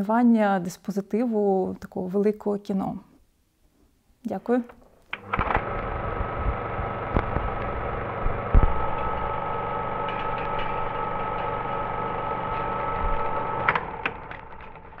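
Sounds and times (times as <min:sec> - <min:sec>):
clicks: 0:04.6 - 0:11.7
film projector whirring and clattering: 0:05.1 - 0:15.0
whining tones: 0:05.1 - 0:15.0.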